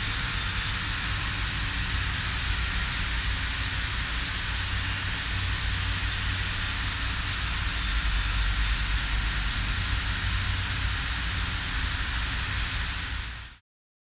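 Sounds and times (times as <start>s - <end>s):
film projector whirring: 0.0s - 13.6s.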